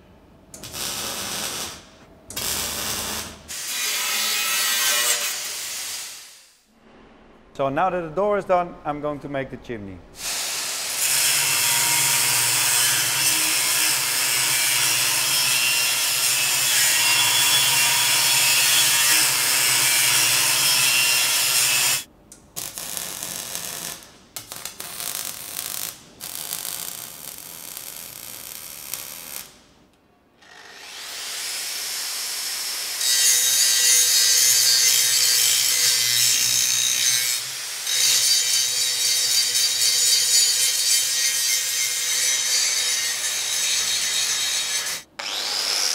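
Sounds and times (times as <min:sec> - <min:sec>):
electric arc welding: 0:00.6 - 0:06.6, 0:10.2 - 0:29.6
angle grinder cutting steel pipe: 0:10.3 - 0:22.0, 0:30.4 - 0:45.9.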